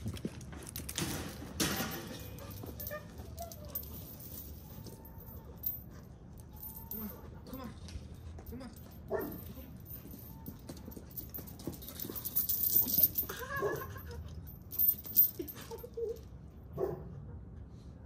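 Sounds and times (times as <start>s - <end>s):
dog yelping: 13.0s - 14.1s.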